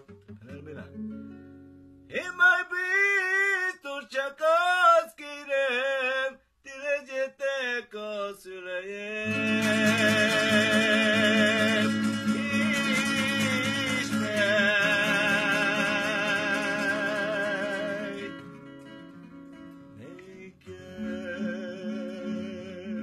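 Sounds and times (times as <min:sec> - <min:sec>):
guitar accompaniment: 0:00.0 - 0:03.5, 0:09.2 - 0:23.0
man singing with vibrato: 0:00.4 - 0:01.0, 0:02.1 - 0:23.0.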